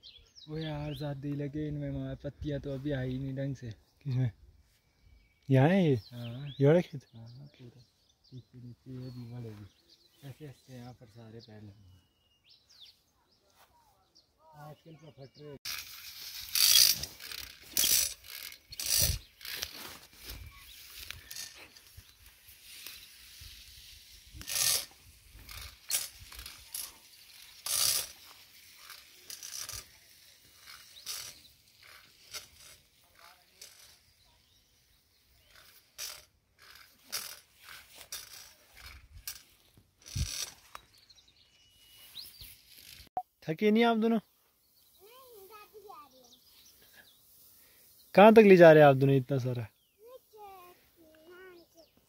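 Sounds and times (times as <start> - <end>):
footsteps through tall grass: 12.9 - 14.0, 18.8 - 25.9
pump mechanical rattling: 15.6 - 19.8, 24.4 - 34.0
sprayer hissing: 15.7 - 33.9.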